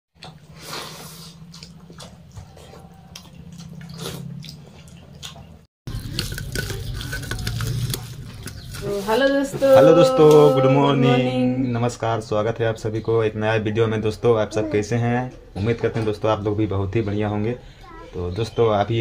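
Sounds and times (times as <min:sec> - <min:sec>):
wet chewing and smacking: 0:00.2 - 0:09.1.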